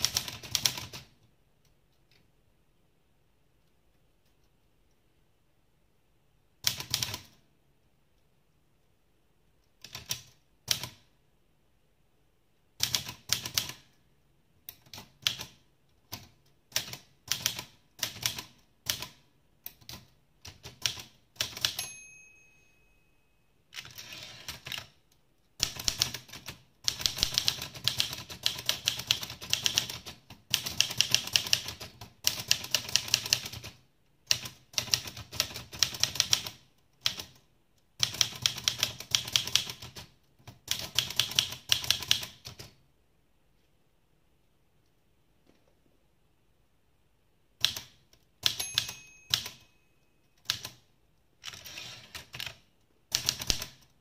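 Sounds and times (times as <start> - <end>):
typewriter margin bell: 21.5 - 24.9, 48.4 - 50.7
typewriter carriage return: 23.7 - 24.9, 51.4 - 52.6
typewriter key strikes: 48.4 - 49.7.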